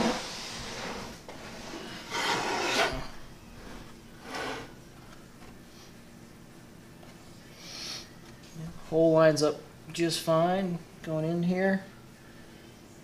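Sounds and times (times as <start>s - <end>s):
plywood box scraping on workbench: 0.0s - 4.7s.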